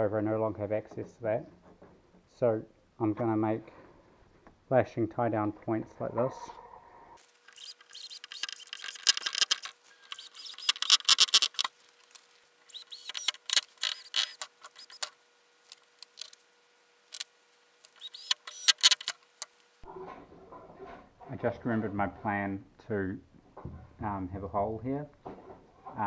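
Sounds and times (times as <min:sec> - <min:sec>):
drill boring into wood: 0:07.5 - 0:11.6, 0:12.7 - 0:15.1, 0:18.0 - 0:19.1.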